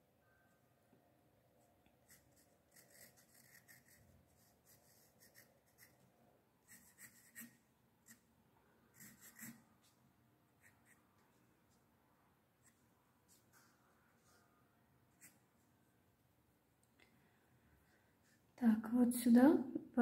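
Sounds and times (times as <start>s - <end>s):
pencil scratching on paper: 2.0s - 6.0s, 6.7s - 8.2s, 8.9s - 9.9s.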